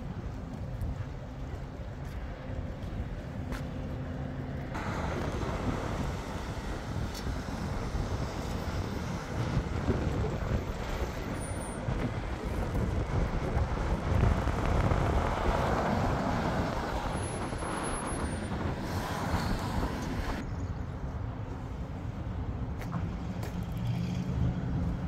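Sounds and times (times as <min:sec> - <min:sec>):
cars driving past: 0:03.4 - 0:20.5, 0:22.7 - 0:25.0.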